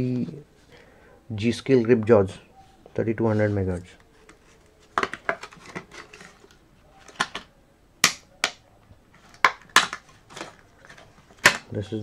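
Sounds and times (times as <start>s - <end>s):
plastic snaps: 9.3s - 10.6s, 11.4s - 11.7s.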